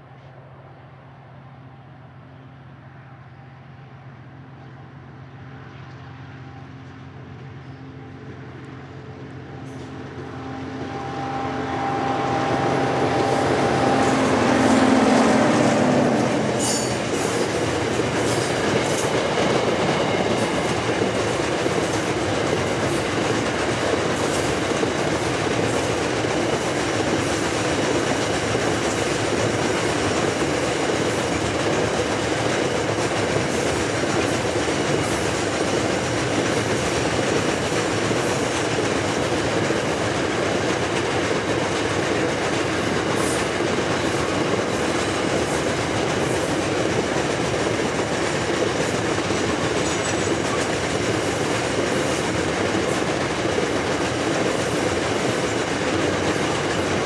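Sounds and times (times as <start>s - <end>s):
wagon wheels rumbling on rail: 5.8s - 57.0s
wheels clicking over rail joints: 16.5s - 57.0s.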